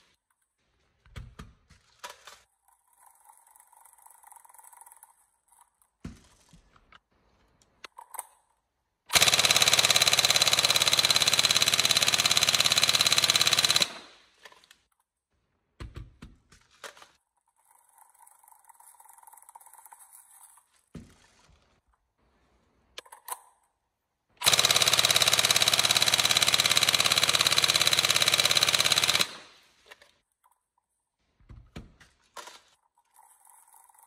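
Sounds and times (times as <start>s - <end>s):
airsoft rifle full-auto burst: 9.1s - 14.4s, 24.4s - 29.8s.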